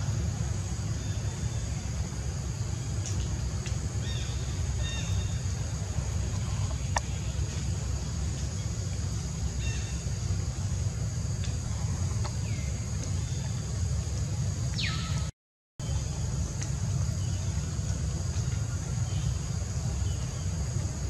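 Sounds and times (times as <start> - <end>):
bird chirps: 14.7 - 16.2.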